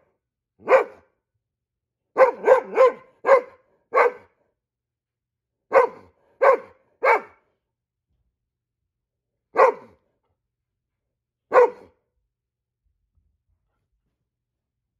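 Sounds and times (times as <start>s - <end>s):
dog barking: 0.6s - 1.1s, 2.1s - 4.4s, 5.7s - 7.5s, 9.5s - 10.0s, 11.5s - 12.0s.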